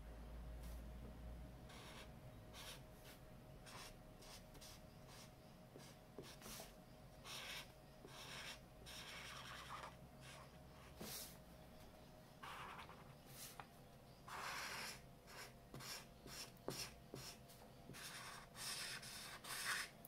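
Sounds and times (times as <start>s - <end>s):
felt-tip markers scratching paper: 7.3s - 11.3s, 12.4s - 13.6s, 14.3s - 19.9s.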